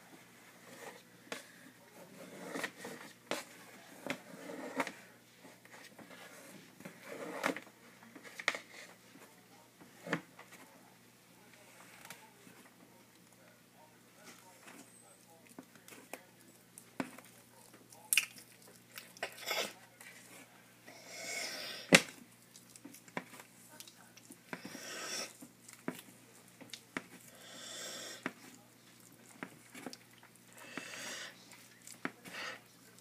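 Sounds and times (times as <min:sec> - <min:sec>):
tortoise chewing food: 0:00.0 - 0:10.9, 0:11.5 - 0:33.0.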